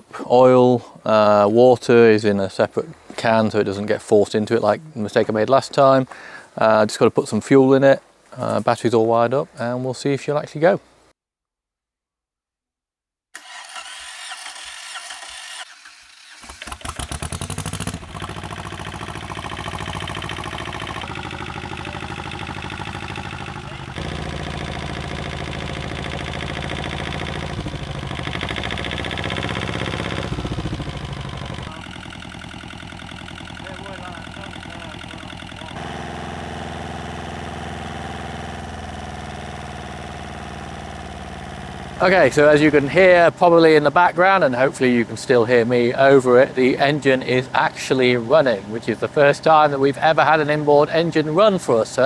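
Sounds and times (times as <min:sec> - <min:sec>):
starter motor cranking: 0:13.4 - 0:43.2
diesel engine idling: 0:16.8 - 0:50.7.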